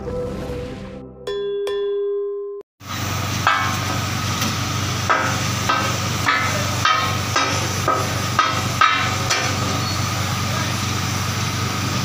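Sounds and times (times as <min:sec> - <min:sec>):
metal spatulas clanking on griddle: 0:03.4 - 0:03.8, 0:05.1 - 0:10.1.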